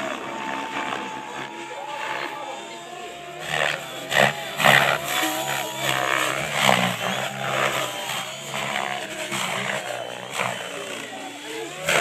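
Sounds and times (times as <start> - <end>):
model aircraft motor droning: 0.0 - 12.0.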